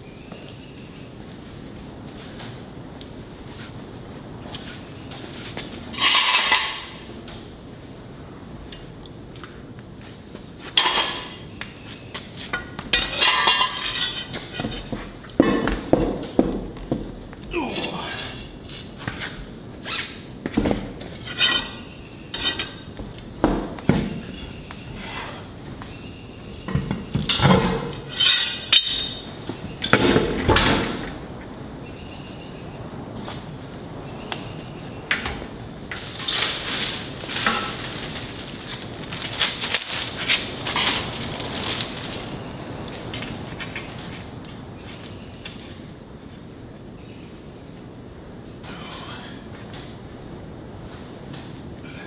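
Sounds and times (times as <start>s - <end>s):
metal rim clinking on hub: 26.5s - 29.2s
metal nuts jingling in plastic bag: 36.0s - 42.4s.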